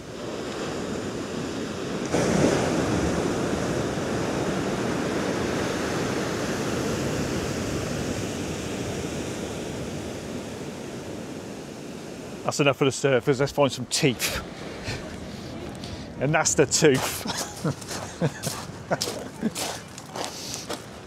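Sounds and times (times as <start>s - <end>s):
whitewater rushing in: 0.0s - 19.5s
wave breaking: 0.1s - 12.5s.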